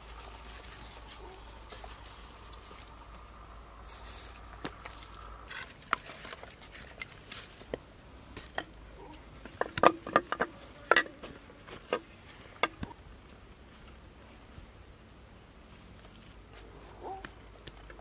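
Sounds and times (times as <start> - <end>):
wooden sticks knocking together: 9.4 - 12.9.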